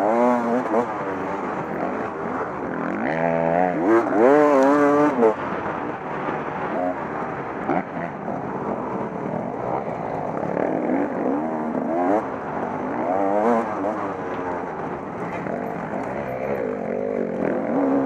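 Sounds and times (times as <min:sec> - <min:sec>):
motorcycle engine revving: 0:00.0 - 0:05.4, 0:06.6 - 0:18.0.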